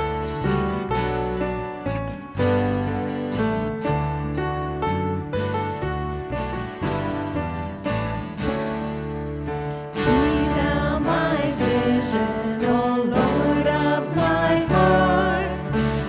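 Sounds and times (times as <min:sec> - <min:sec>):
acoustic guitar strumming: 0:00.0 - 0:16.0
worship band playing: 0:08.8 - 0:16.0
woman singing: 0:10.0 - 0:16.0.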